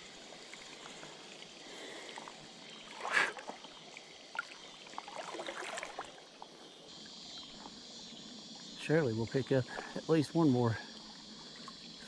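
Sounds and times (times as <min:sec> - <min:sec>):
water splashing: 0:00.0 - 0:06.4.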